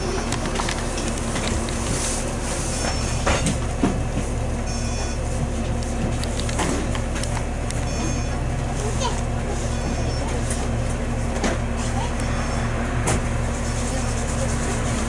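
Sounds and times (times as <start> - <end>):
bus engine drone: 0.0 - 15.0
road noise: 0.0 - 15.0
bus body rattles and knocks: 2.8 - 8.5, 10.1 - 12.0, 12.9 - 13.5.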